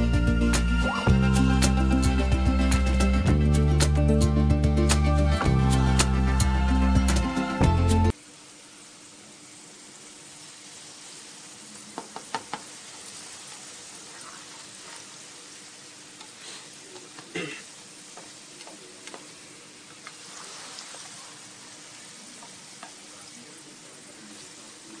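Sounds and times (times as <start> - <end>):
background music: 0.0 - 8.1
oil sizzling in a pot: 8.1 - 25.0.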